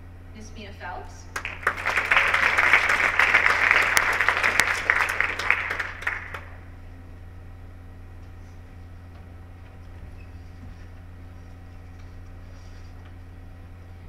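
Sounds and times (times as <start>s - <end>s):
steady low hum: 0.0s - 14.0s
audience applauding: 1.4s - 6.6s.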